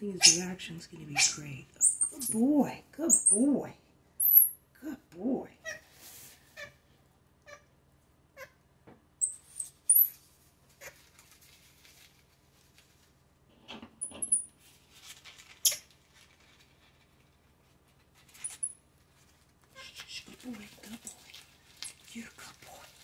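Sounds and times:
monkeys squeaking: 0.2s - 2.5s, 3.1s - 3.5s
faint rustling: 10.1s - 13.2s.

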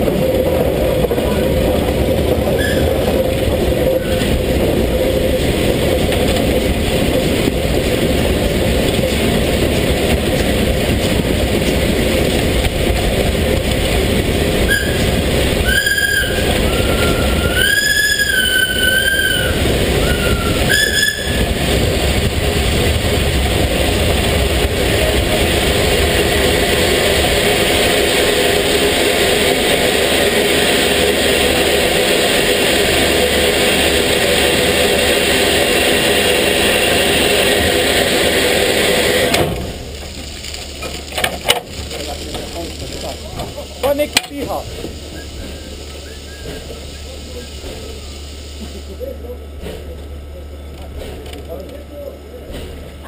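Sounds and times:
steam locomotive running: 0.0s - 53.0s
high wavering squeal: 14.7s - 21.6s.

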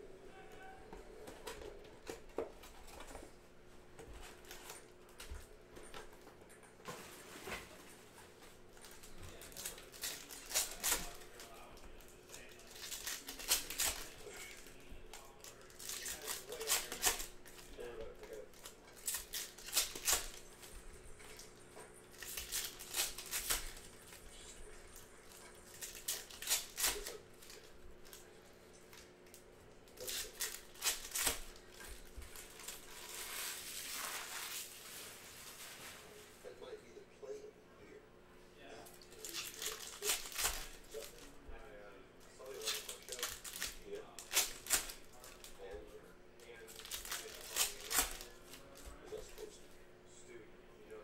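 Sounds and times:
card pack wrappers rustling: 8.6s - 29.2s, 29.9s - 36.1s, 39.1s - 41.4s, 42.4s - 45.7s, 46.5s - 49.6s.

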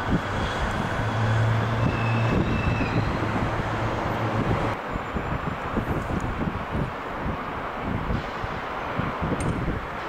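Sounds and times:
distant engines and vehicles: 0.0s - 10.0s.

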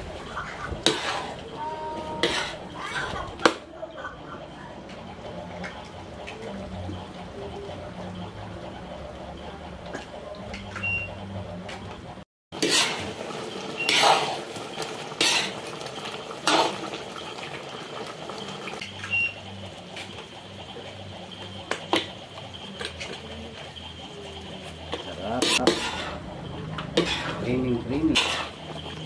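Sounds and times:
metal ladle scraping a wok: 0.8s - 3.1s, 12.6s - 13.2s, 13.8s - 14.5s, 15.1s - 15.8s, 16.4s - 16.9s, 24.6s - 29.0s.

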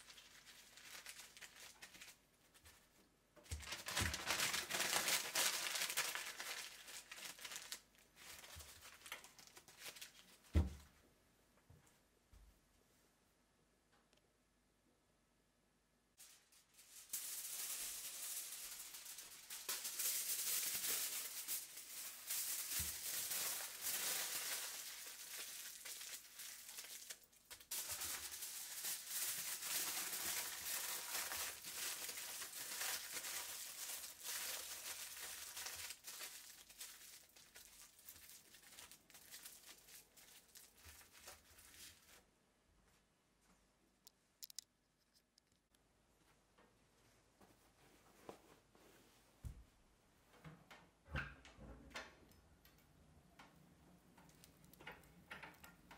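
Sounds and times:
aluminium foil crinkling: 0.0s - 10.5s, 16.2s - 42.3s.

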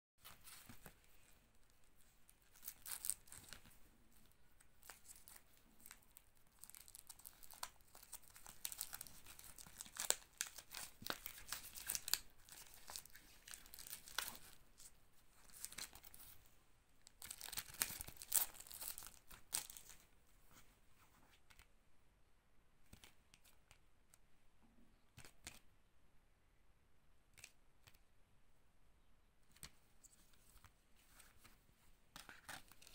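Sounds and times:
cardboard sleeve handling: 0.2s - 16.4s
plastic wrap tearing and crinkling: 4.8s - 14.6s, 17.2s - 19.9s.

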